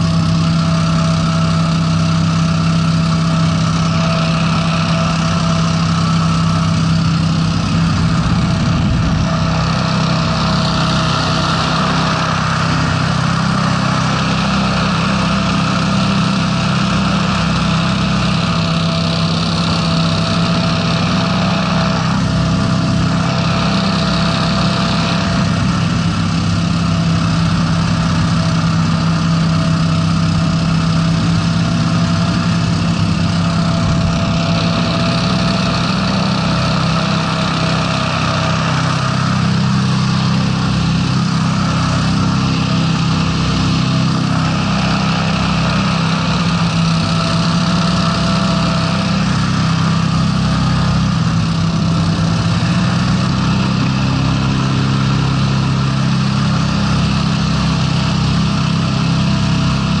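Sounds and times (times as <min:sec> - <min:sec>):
fan air rush: 0:00.0 - 1:00.0
hovercraft engines running: 0:00.0 - 1:00.0.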